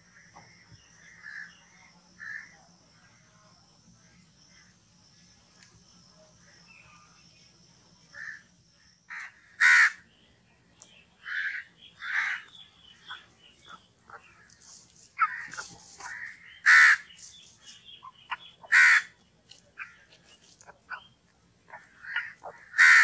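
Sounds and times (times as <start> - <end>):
crow cawing: 2.2 - 2.5, 8.2 - 8.5, 9.1 - 10.0, 11.2 - 12.5, 15.2 - 17.1, 18.6 - 19.2, 21.8 - 23.0.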